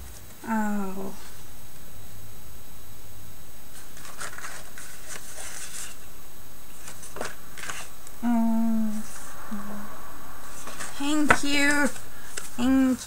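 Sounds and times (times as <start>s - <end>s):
woman humming: 0.4s - 1.3s, 8.1s - 12.0s
paper rustling and sliding: 3.7s - 6.0s, 6.7s - 7.9s, 10.4s - 12.7s.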